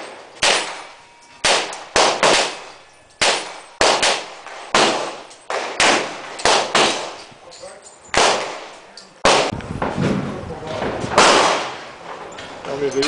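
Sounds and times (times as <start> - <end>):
gunshots with echo: 0.0 - 7.3, 8.1 - 9.6, 11.1 - 11.9.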